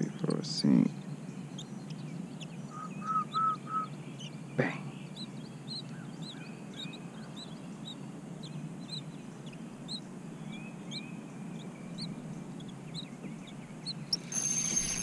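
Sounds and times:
birds chirping: 0.0 - 15.0
bird slurred whistles: 2.7 - 3.9.

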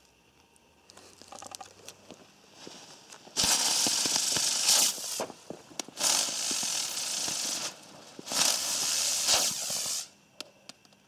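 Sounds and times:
firework crackles: 2.5 - 10.2
firework spurts hissing: 2.5 - 10.2.

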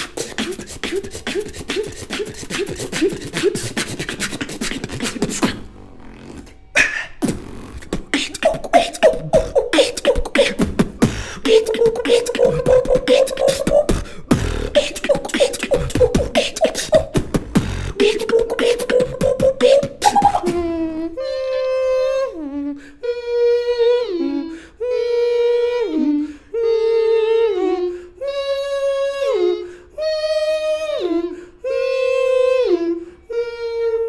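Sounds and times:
beatbox drum clicks and snares: 0.0 - 5.7, 6.8 - 20.7.

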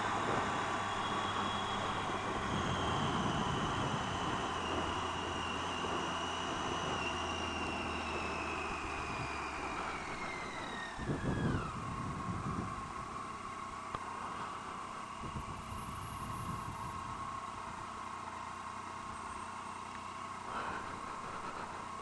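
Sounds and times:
motorcycle engine with whine: 0.0 - 22.0.

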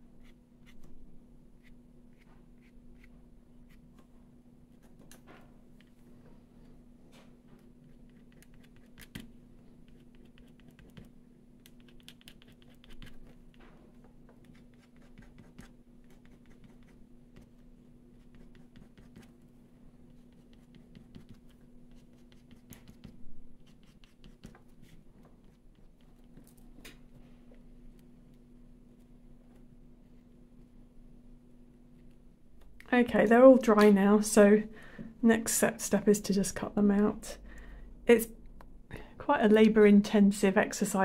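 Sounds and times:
paint pen scratching on paper: 7.8 - 11.1, 11.7 - 13.4, 14.4 - 19.4, 20.1 - 25.9.

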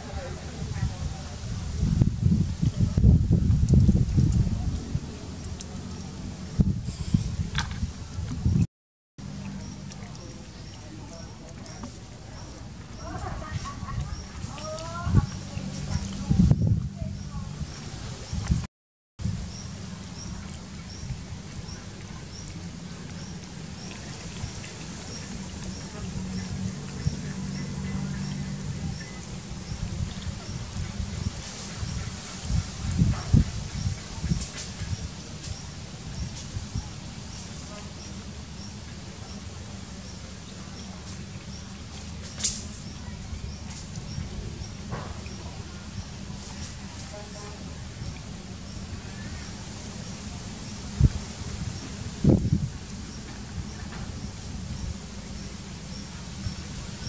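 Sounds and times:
wind rumble on microphone: 0.0 - 57.0
microphone handling noise: 1.5 - 4.9, 6.5 - 8.7.

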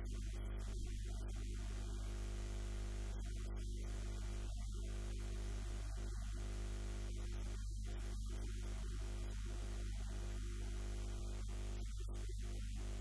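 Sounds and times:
electrical mains hum: 0.0 - 13.0
static hiss: 0.0 - 13.0.

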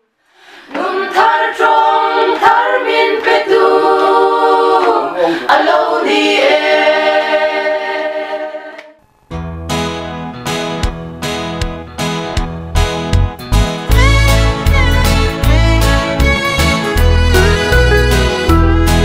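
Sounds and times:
women's choir singing a cappella: 0.6 - 9.0
instrumental music: 8.8 - 19.0.

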